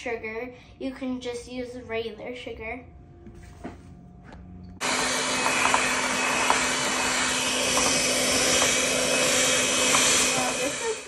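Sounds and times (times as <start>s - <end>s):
electric hand mixer whipping cream: 4.8s - 11.0s.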